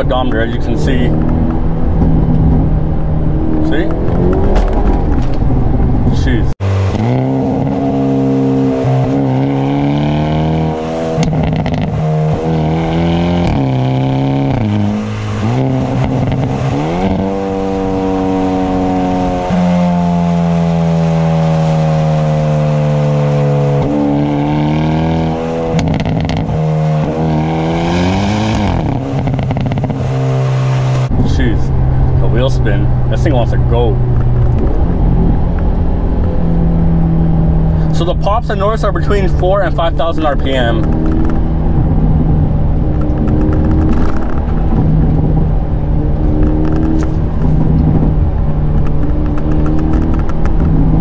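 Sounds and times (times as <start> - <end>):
car engine accelerating through gears: 0.0 - 51.0.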